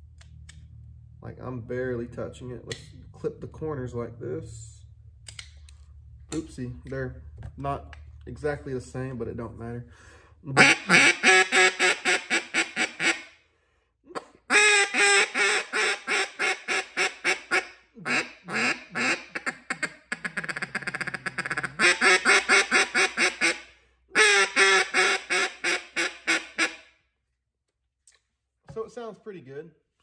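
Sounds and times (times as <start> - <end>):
duck call quacking: 10.6 - 13.3, 14.5 - 26.8.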